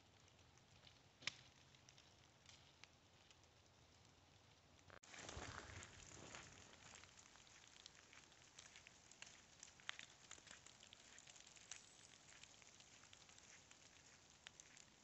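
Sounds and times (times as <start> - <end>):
wet snow ticking on leaves: 0.0 - 15.0.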